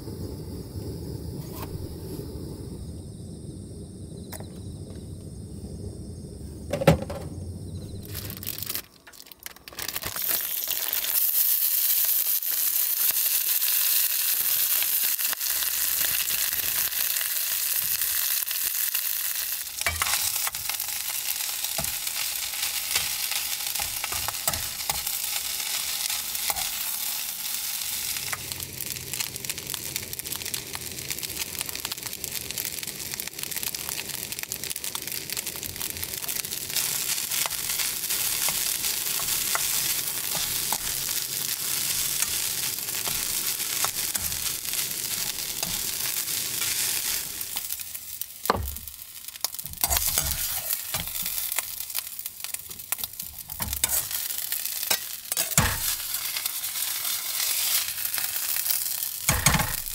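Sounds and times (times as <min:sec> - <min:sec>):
rice sizzling in a wok: 0:00.0 - 0:03.2, 0:07.9 - 0:59.9
ladle knocking and scraping wok: 0:19.8 - 0:20.8, 0:21.7 - 0:25.6, 0:37.3 - 0:46.2, 0:49.5 - 0:51.4, 0:53.2 - 0:54.3, 0:54.9 - 0:56.2, 0:59.3 - 0:59.9.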